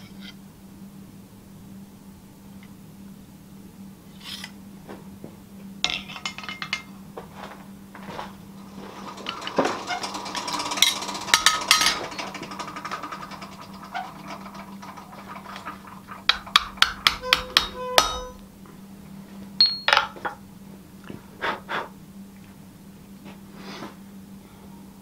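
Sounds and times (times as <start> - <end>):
steel tools clinking on anvil: 5.9 - 7.0, 19.6 - 20.2.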